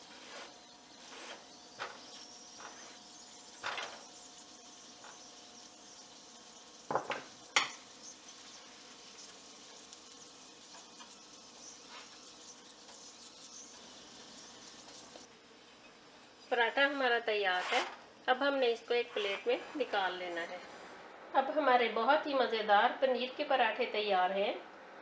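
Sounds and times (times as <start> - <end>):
flatbread sizzling in a pan: 0.0 - 18.1.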